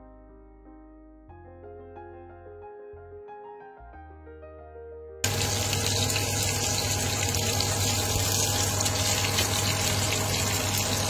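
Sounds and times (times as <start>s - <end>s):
fish frying in hot oil: 5.2s - 11.0s.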